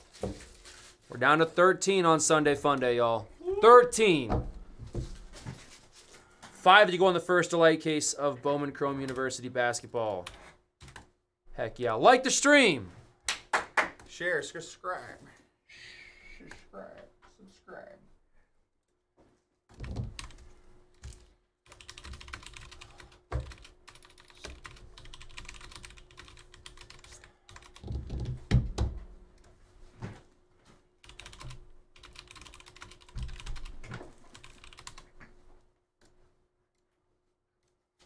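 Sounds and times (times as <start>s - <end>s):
typing on computer keyboard: 10.2s - 11.1s, 19.7s - 28.4s, 31.0s - 35.1s.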